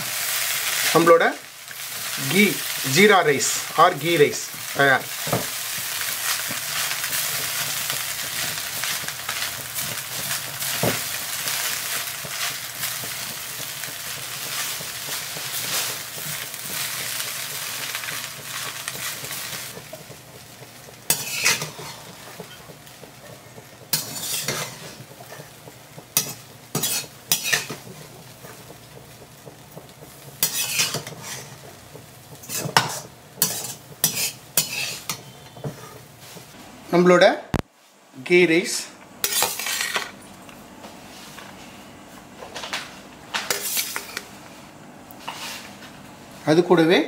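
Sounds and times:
rice sizzling in pan: 0.0 - 36.6, 39.2 - 40.3, 43.1 - 46.6
spatula scraping pan: 1.7 - 28.8, 29.5 - 36.6, 39.2 - 40.1, 43.5 - 44.3.

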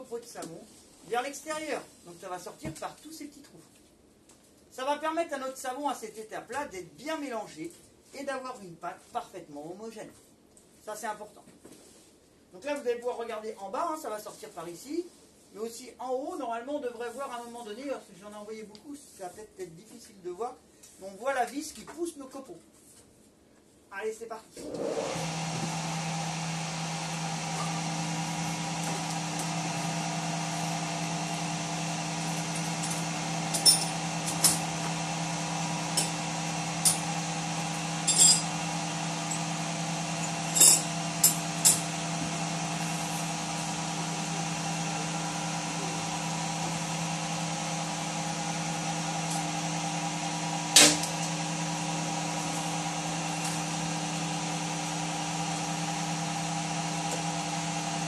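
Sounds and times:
machine motor humming: 24.6 - 58.0.

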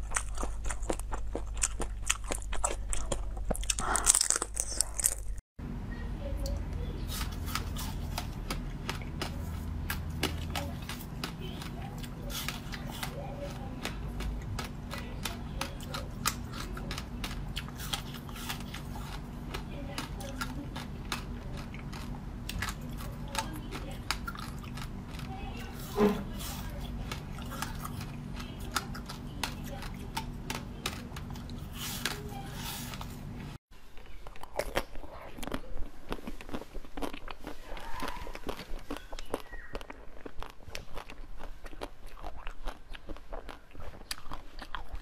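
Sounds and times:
crunching frozen chocolate: 0.0 - 5.4, 7.0 - 33.2, 33.9 - 45.0
wet biting and sucking jelly: 0.0 - 5.4
wet chewing and squishing: 0.0 - 5.4, 6.4 - 45.0.

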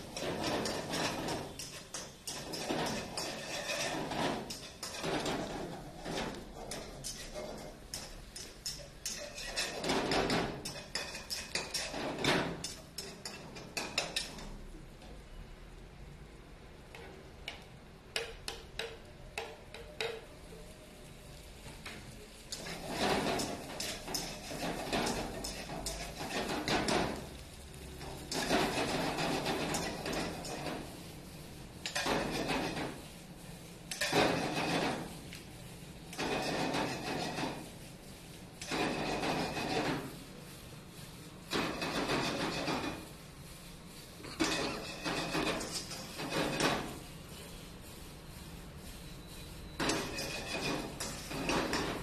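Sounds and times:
spatula clanking against wok: 0.0 - 14.5, 16.9 - 20.3, 22.5 - 27.4, 28.0 - 30.9, 49.7 - 52.0.

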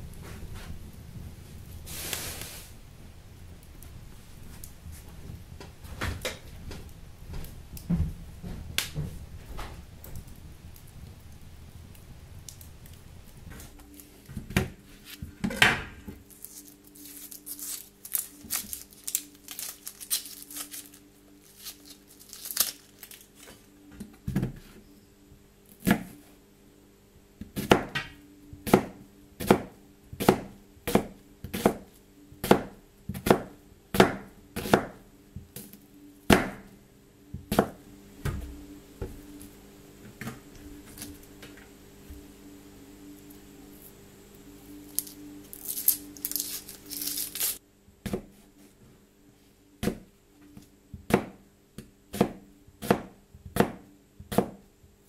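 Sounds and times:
knife chopping on cutting board: 25.8 - 26.2, 27.6 - 31.8, 32.4 - 35.0, 48.0 - 48.4, 52.1 - 54.6.

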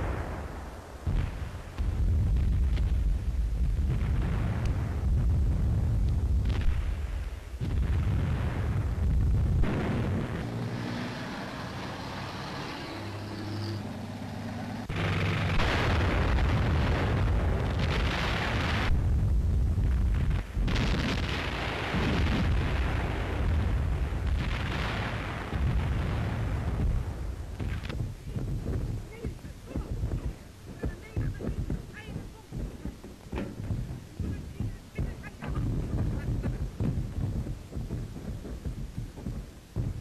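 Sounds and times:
rumbling explosions: 0.0 - 40.0
gunfire: 6.4 - 11.2, 14.9 - 19.0, 20.0 - 40.0.

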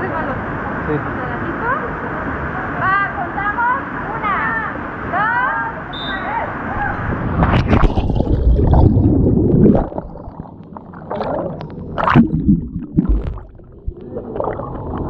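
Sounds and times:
water gurgling and splashing: 6.6 - 15.0.

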